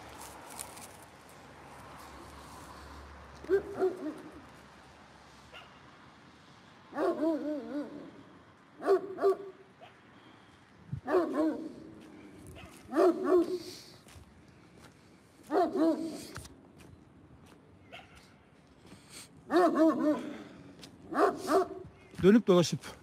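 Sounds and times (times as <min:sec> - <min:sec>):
dog barking: 0:03.4 - 0:04.4, 0:05.5 - 0:05.9, 0:06.9 - 0:08.2, 0:08.8 - 0:10.1, 0:11.0 - 0:12.0, 0:12.6 - 0:13.8, 0:15.4 - 0:16.4, 0:17.8 - 0:18.4, 0:19.5 - 0:20.5, 0:21.1 - 0:21.9.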